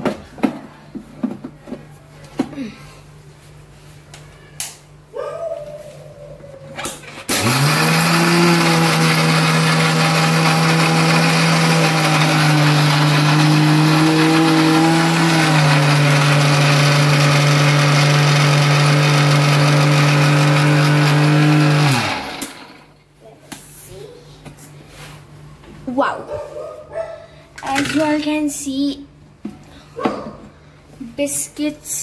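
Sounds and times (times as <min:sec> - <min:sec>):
mixer grinder running: 0:07.1 - 0:23.0.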